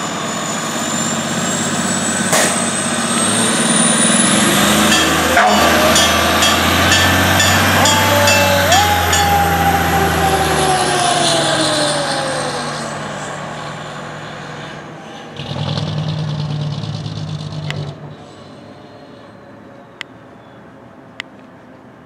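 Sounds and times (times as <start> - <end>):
fire engine siren winding down: 0.0 - 17.9
deep horn blast: 2.3 - 11.8.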